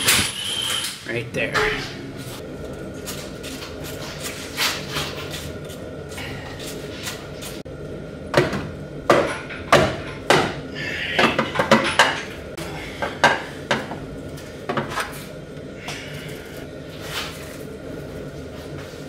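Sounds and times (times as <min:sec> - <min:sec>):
metallic clatter of parts: 0:11.3 - 0:12.4.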